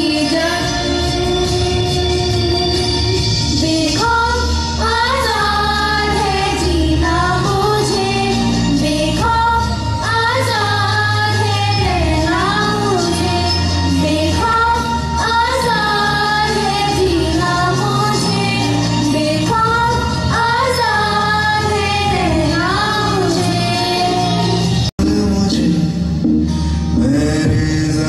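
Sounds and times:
girls singing: 0.0s - 2.9s, 3.5s - 24.6s
instrumental backing with bass: 0.0s - 28.0s.

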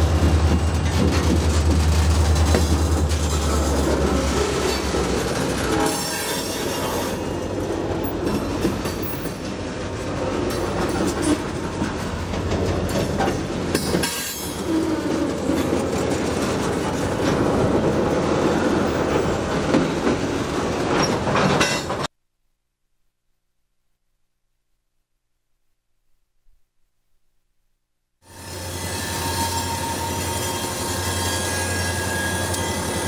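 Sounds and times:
diesel locomotive engines running: 0.0s - 22.0s
train wheels clattering over rails: 0.0s - 22.1s.

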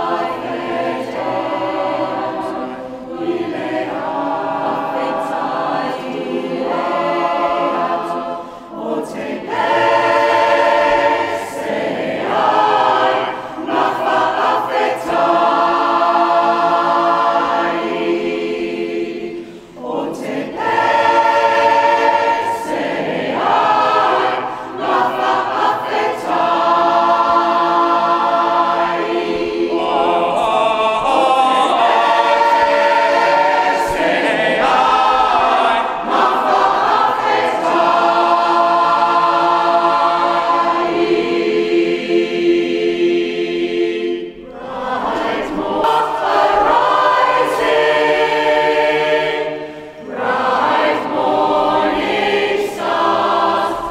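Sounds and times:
choir singing unaccompanied: 0.0s - 53.9s.

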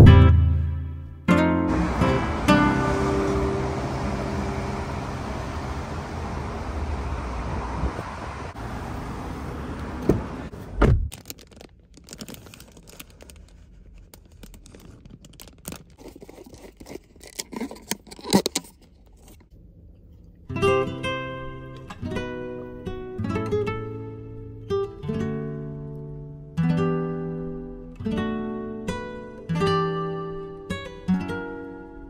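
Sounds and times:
outdoor background noise: 0.0s - 27.9s
heavy thumps: 10.0s - 11.2s
plastic bag rustling: 11.1s - 19.4s.

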